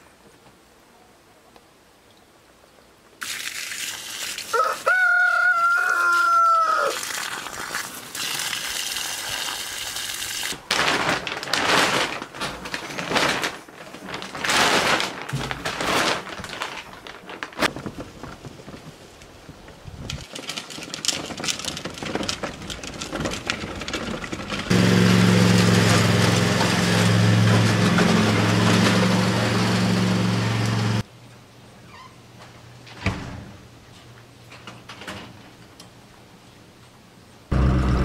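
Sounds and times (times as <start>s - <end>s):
garden hose spraying water: 3.2s - 10.7s, 24.7s - 31.0s
rooster crowing: 4.5s - 7.0s.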